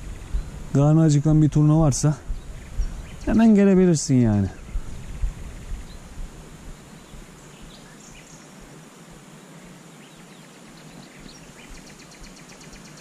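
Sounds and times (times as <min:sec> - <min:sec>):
faint steady hiss: 0:00.0 - 0:13.0
bird chirps: 0:02.3 - 0:03.6, 0:10.0 - 0:13.0.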